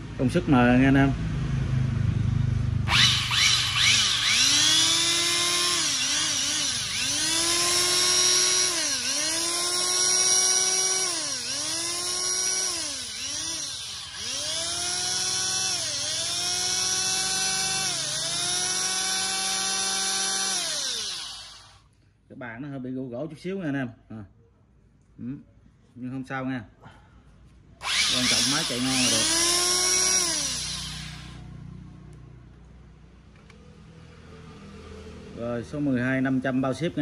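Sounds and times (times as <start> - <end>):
electric hand planer whining: 2.9 - 21.8, 27.8 - 31.4.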